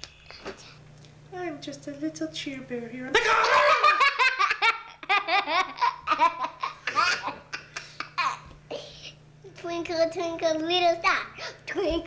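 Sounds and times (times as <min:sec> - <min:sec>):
little girl laughing: 0:03.2 - 0:08.9.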